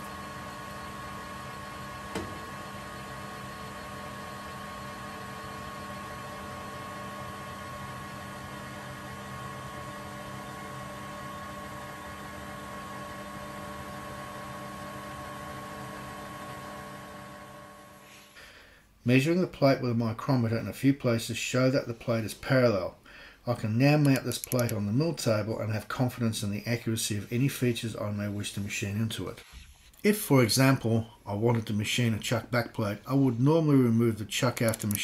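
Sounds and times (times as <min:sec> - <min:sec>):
single click: 0:24.0 - 0:24.8, 0:34.7 - 0:35.0.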